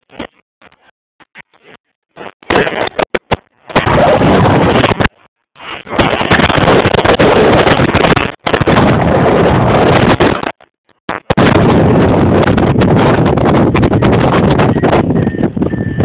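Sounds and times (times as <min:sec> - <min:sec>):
wind buffeting microphone: 0:03.7 - 0:16.0.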